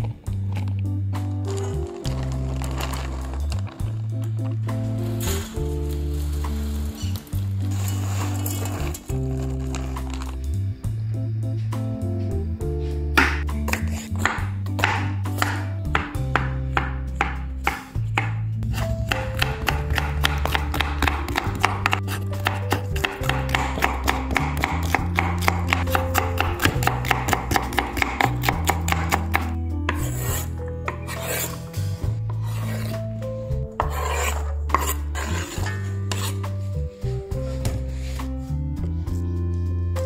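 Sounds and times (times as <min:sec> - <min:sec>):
background music with bass line: 0:00.0 - 0:40.0
rasping scraping strokes: 0:05.0 - 0:10.4, 0:28.9 - 0:33.1, 0:33.8 - 0:36.9.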